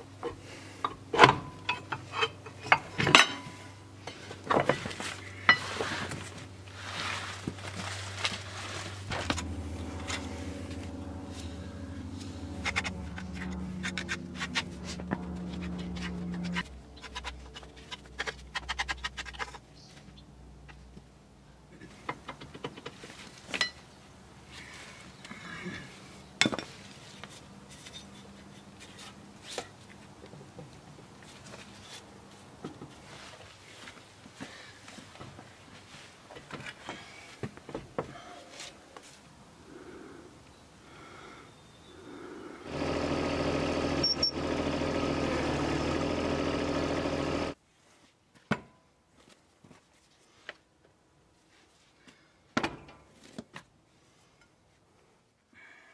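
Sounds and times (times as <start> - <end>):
hands scraping dirt off metal: 4.1 - 19.6
small diesel engine idling: 42.7 - 47.6.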